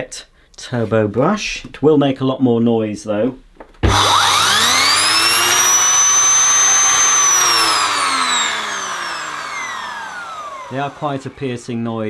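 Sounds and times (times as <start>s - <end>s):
vacuum cleaner whine: 3.8s - 12.0s.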